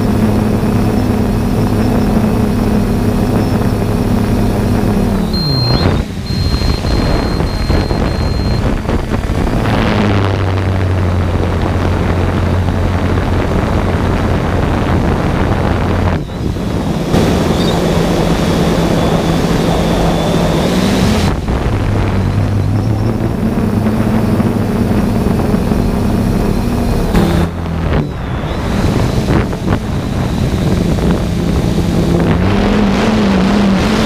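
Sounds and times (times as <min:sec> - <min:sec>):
drone motors humming: 0:00.0 - 0:34.0
short high beeps: 0:05.2 - 0:08.8.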